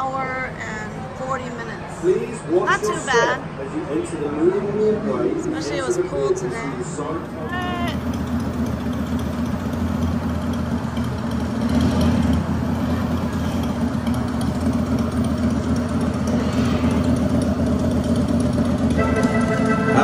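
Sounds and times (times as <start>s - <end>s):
motorbike engine idling: 7.0s - 20.0s.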